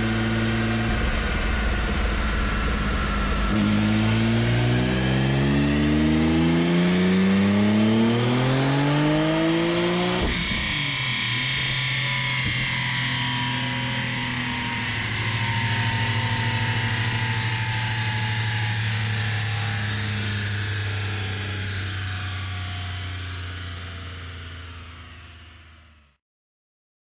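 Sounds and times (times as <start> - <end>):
car engine idling: 0.0 - 5.0.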